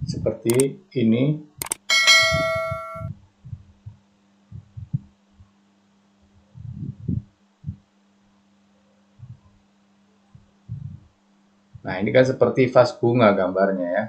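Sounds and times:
steady low hum: 0.0 - 14.0
chime ringing: 1.8 - 3.1
soft muffled low thumps: 2.1 - 5.6, 6.4 - 7.9, 9.2 - 9.5, 10.3 - 11.9.

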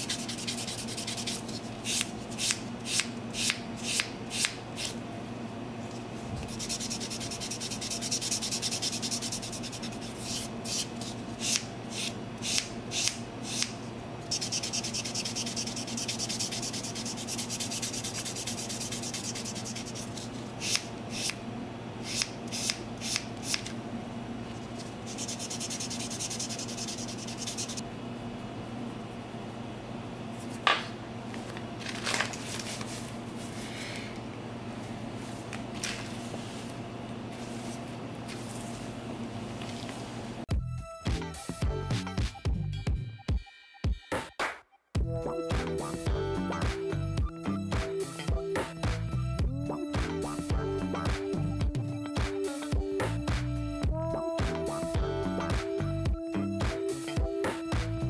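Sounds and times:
nail buffer rubbing fingernails: 0.0 - 2.6, 6.4 - 13.7, 14.3 - 21.4, 25.1 - 27.8.

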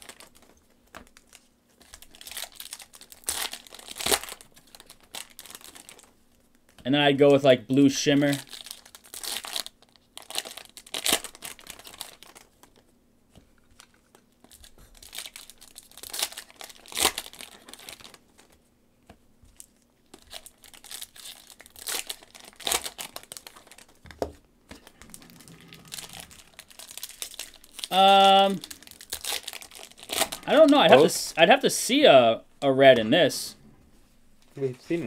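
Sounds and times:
foil wrappers crinkling and tearing: 0.0 - 6.8, 8.2 - 12.9, 13.6 - 18.6, 19.6 - 31.3.

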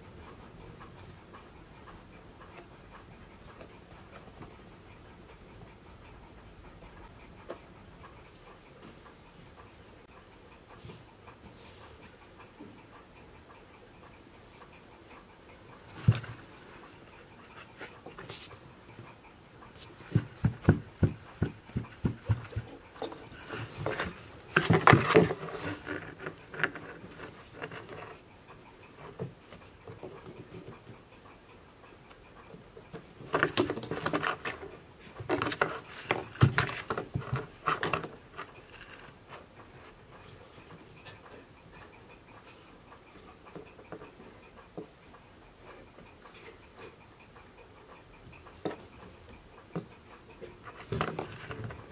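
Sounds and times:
cats scratching cardboard box: 19.9 - 28.1, 33.3 - 34.6, 35.2 - 39.0.

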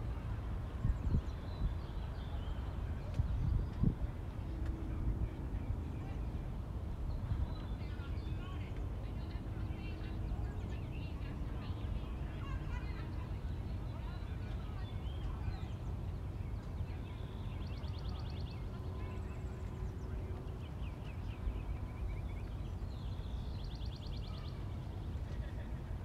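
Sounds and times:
birds chirping: 7.1 - 26.0.

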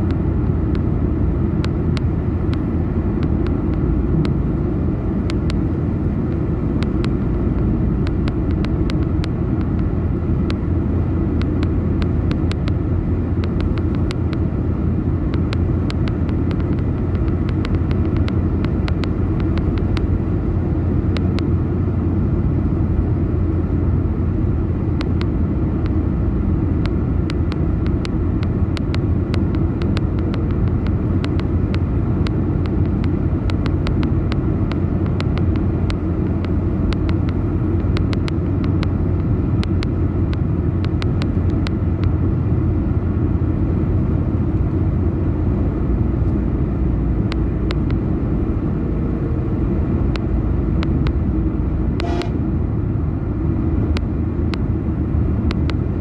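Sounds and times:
car road and engine rumble: 0.0 - 56.0
light ticks: 1.6 - 4.4, 5.2 - 5.6, 6.3 - 10.6, 11.4 - 12.8, 13.4 - 14.5, 15.3 - 20.1, 21.1 - 21.5, 25.0 - 26.0, 26.8 - 42.2, 47.3 - 48.0, 50.1 - 51.2, 55.4 - 55.8.

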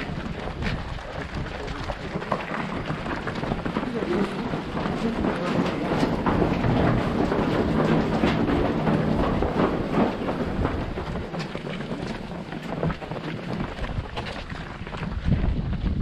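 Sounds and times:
runners footsteps on cobbles: 0.0 - 16.0
wind rumble on microphone: 0.0 - 16.0.

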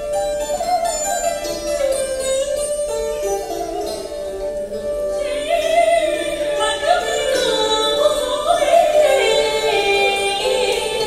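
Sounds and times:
woman singing with wavering pitch: 5.2 - 11.0.

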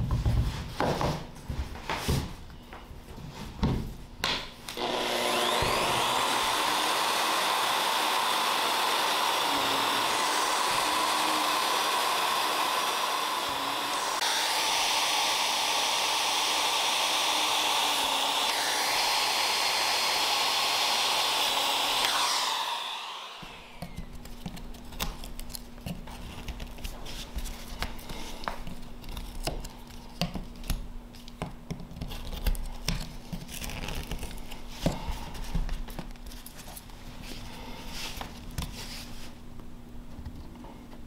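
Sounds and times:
knocks and handling noises: 0.0 - 4.6
electric router running: 4.8 - 24.2.

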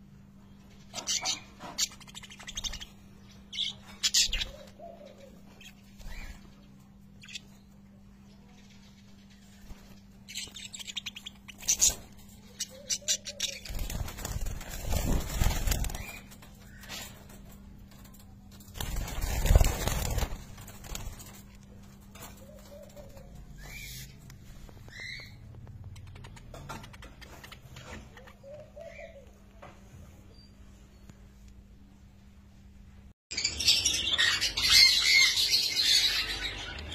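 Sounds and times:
budgerigars clicking and scratching: 0.7 - 7.6, 8.9 - 29.0
wing flapping: 9.6 - 23.3.

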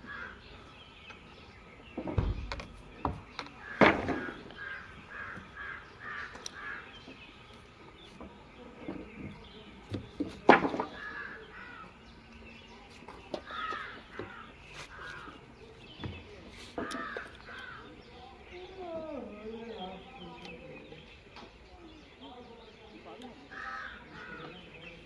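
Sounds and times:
crows cawing: 0.0 - 0.5, 3.6 - 7.0, 11.0 - 12.0, 13.4 - 15.4, 16.8 - 18.0, 23.5 - 24.6.

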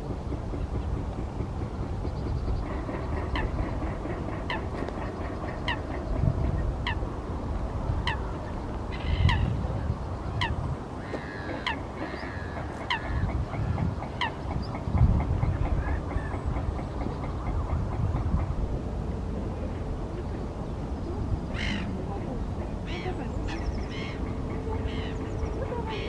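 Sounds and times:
geese honking: 21.6 - 26.0.

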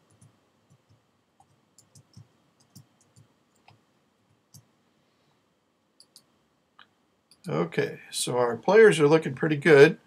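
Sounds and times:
computer keyboard keystrokes: 0.0 - 3.8.

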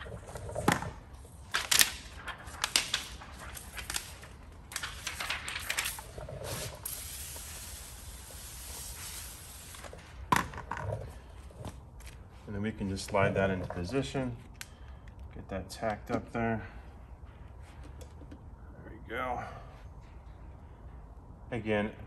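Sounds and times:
plastic film crinkling and rustling: 0.0 - 10.3.

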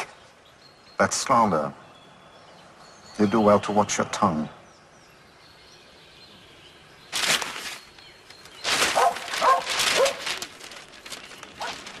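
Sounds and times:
dog barking: 8.9 - 10.2.

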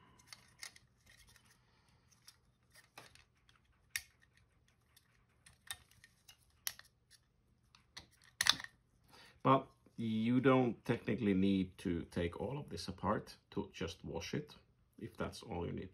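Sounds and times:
plastic parts clicking: 0.1 - 4.4, 5.0 - 7.2, 7.9 - 8.8.

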